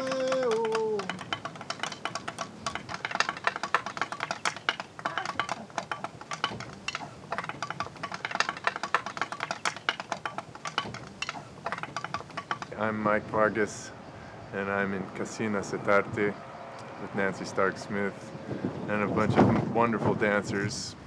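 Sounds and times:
percussion clicks and taps: 0.0s - 13.0s.

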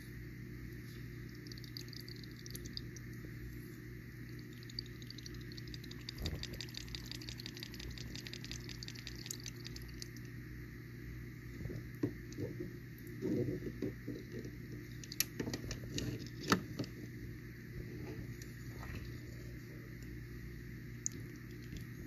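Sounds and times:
crab blowing bubbles crackling: 4.3s - 10.3s.

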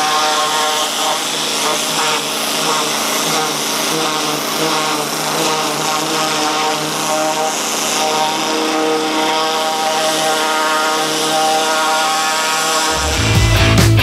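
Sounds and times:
high-pressure water jet blasting metal: 0.0s - 13.3s
background music: 12.9s - 14.0s
gasoline engine running: 12.9s - 14.0s.

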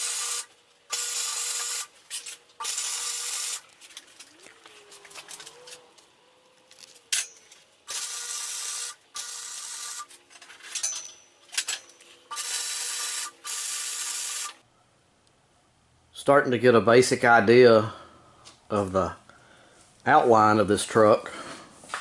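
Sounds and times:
welder sputters: 0.0s - 5.8s, 7.0s - 10.2s, 11.6s - 14.6s.

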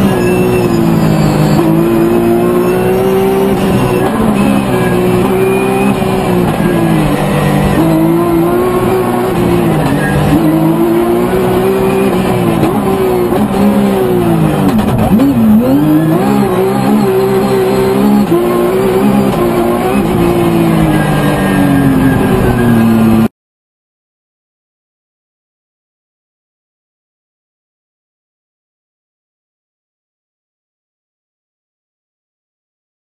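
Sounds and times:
rally car engine revving: 0.0s - 23.3s.

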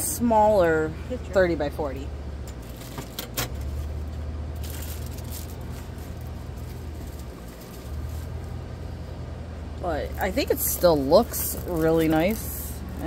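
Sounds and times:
steady low hum: 0.0s - 13.0s
plastic wrapping rustling: 2.6s - 8.7s, 10.0s - 13.0s.

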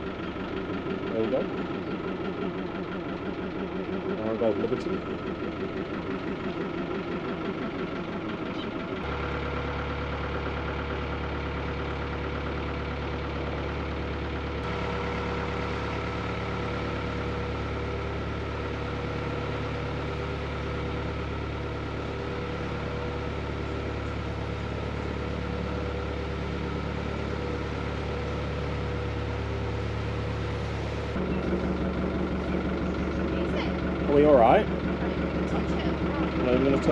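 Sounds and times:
boat diesel engine running: 0.0s - 36.9s.

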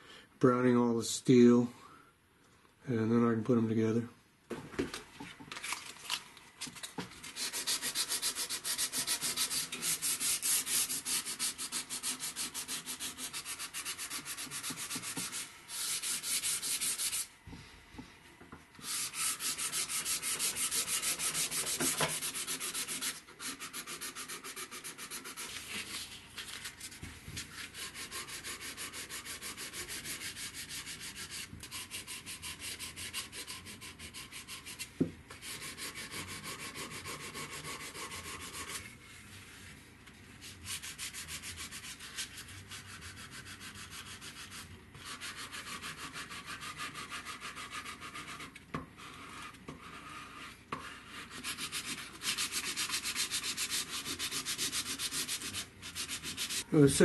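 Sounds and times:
sandpaper rubbing on wood: 7.3s - 17.3s, 18.8s - 26.2s, 27.5s - 38.9s, 40.4s - 56.7s.

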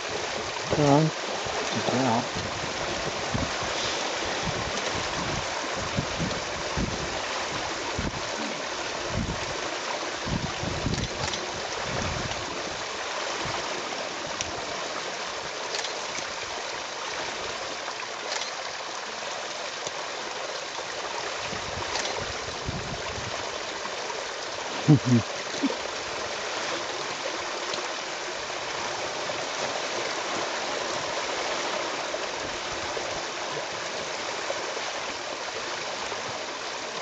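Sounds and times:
rushing water or rain hiss: 0.0s - 37.0s
wind buffeting microphone: 0.2s - 12.8s, 21.4s - 23.5s.

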